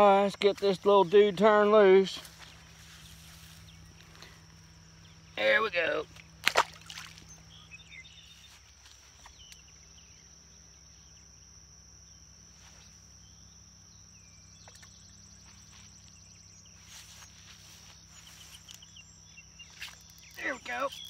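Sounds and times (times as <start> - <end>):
fish splashing into water: 6.4 - 7.4
high-pitched insect buzz: 6.9 - 21.0
faint chirps: 7.0 - 21.0.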